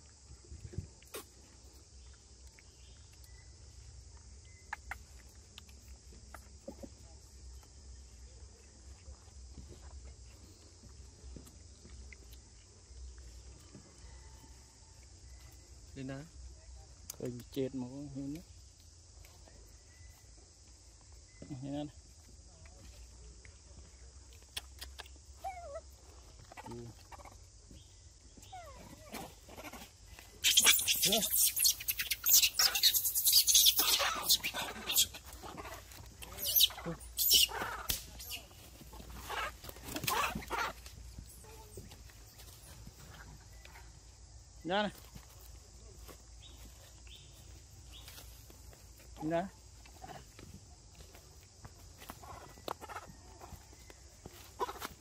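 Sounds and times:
young monkeys calling faintly: 0:24.4 - 0:44.3, 0:52.0 - 0:55.0
high-pitched insect drone: 0:30.4 - 0:35.3.

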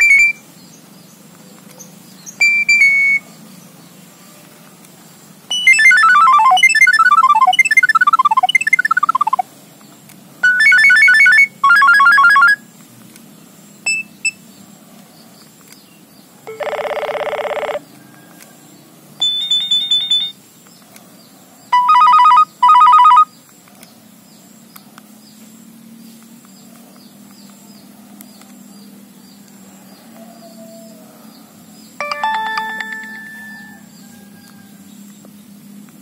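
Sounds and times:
phone alert tones beeping: 0:00.0 - 0:00.4, 0:02.4 - 0:03.2, 0:05.5 - 0:09.4, 0:10.4 - 0:12.6, 0:16.5 - 0:17.8, 0:19.2 - 0:20.4, 0:21.8 - 0:23.3, 0:32.0 - 0:33.8
low outdoor background: 0:00.0 - 0:36.0.

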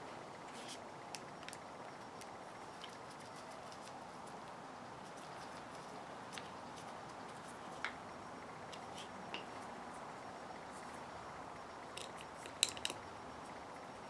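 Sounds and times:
faint steady hiss: 0:00.0 - 0:14.0
metal parts clicking: 0:11.9 - 0:13.0.

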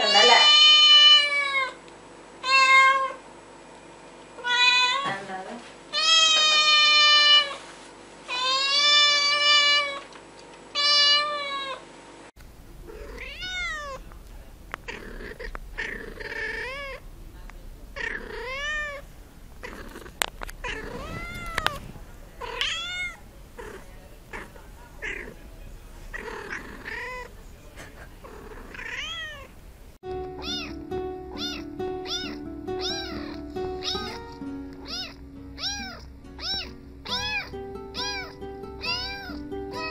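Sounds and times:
kitten meowing: 0:10.8 - 0:11.8, 0:12.8 - 0:14.1, 0:14.8 - 0:17.0, 0:18.0 - 0:19.0, 0:19.6 - 0:25.4, 0:26.0 - 0:27.3, 0:28.2 - 0:29.5, 0:30.4 - 0:39.9
background music: 0:30.0 - 0:39.9.

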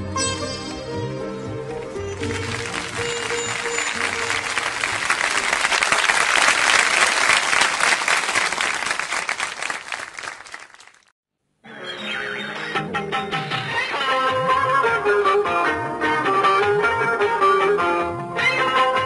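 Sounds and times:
stringed instruments and tabla: 0:00.0 - 0:05.4
audience applauding: 0:02.1 - 0:11.1.

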